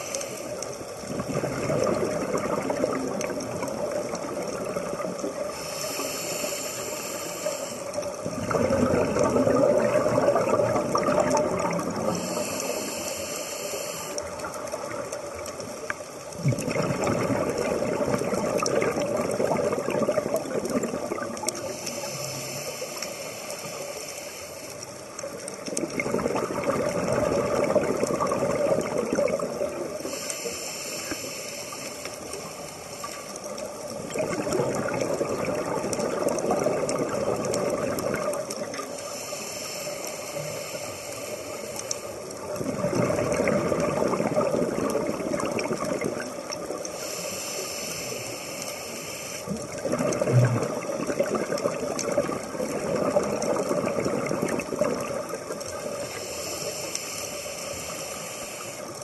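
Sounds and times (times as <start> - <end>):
regulator inhalation hiss: 0.0 - 0.7, 5.5 - 8.2, 11.6 - 14.8, 21.6 - 25.0, 30.0 - 33.6, 38.8 - 42.3, 46.9 - 49.6, 56.0 - 59.0
exhaled bubbles gurgling underwater: 0.0 - 59.0.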